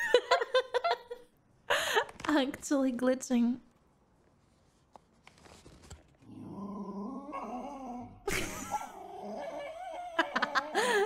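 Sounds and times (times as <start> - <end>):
small dog whining and grumbling: 6.3 - 10.8.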